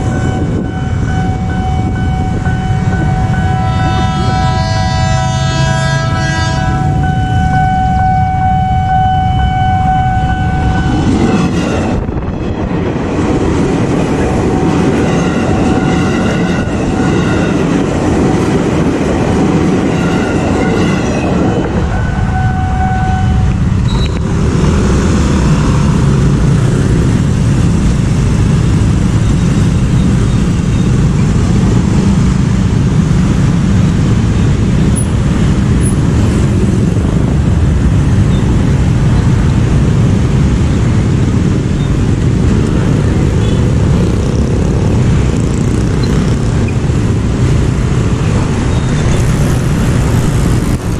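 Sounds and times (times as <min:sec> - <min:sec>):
level crossing alarm ringing: 0:00.0 - 0:04.4, 0:06.8 - 0:11.1, 0:19.7 - 0:23.6
electric train rumble: 0:00.0 - 0:50.9
motorcycle and car traffic: 0:00.0 - 0:50.9.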